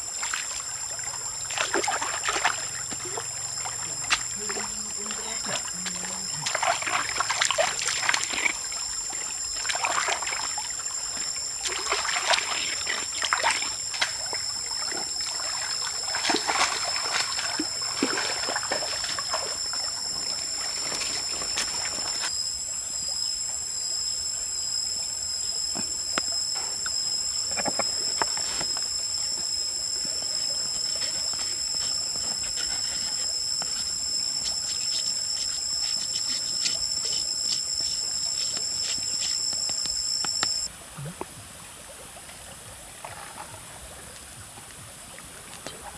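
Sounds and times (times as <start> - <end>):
water trickling: 0.0 - 45.9
hands splashing in stream: 1.4 - 22.3.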